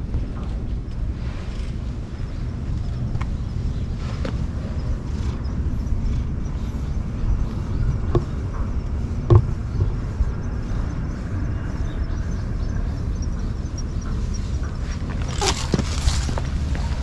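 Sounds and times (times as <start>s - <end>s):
wind rumbling on microphone: 0.0s - 17.0s
knock: 9.3s - 9.9s.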